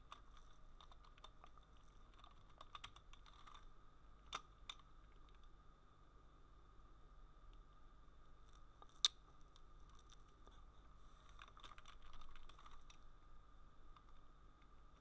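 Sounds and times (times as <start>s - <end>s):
faint electrical whine: 0.0s - 15.0s.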